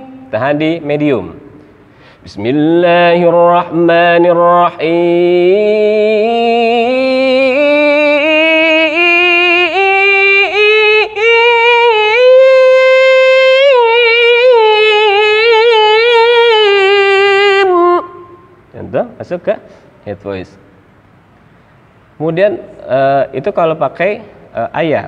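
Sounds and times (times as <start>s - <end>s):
man singing recitation: 0.0s - 1.5s, 2.2s - 20.4s, 22.2s - 25.0s.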